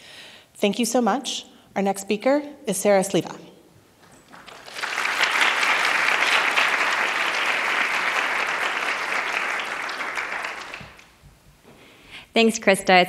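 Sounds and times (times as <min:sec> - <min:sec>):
audience applauding: 0:04.0 - 0:11.2.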